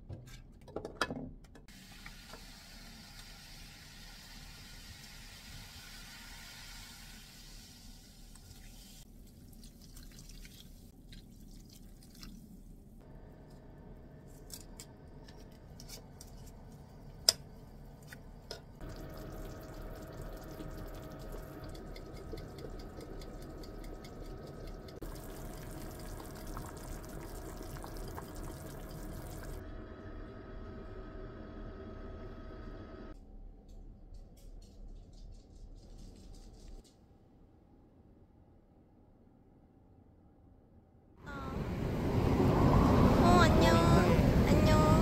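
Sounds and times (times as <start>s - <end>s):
pot boiling: 1.7s - 12.6s, 18.8s - 29.6s
liquid fizzing in a pot: 1.7s - 13.0s, 18.8s - 29.6s.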